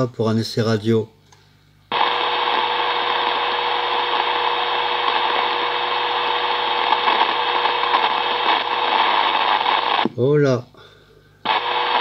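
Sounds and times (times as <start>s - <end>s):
radio static hiss: 1.9s - 10.3s, 11.4s - 12.0s.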